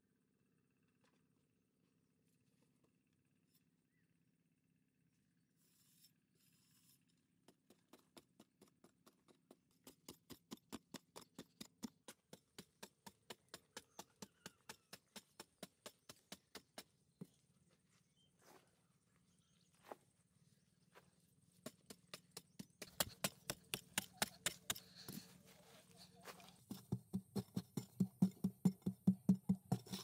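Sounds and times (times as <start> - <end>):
soil scraping: 5.6 - 16.8, 21.5 - 30.0.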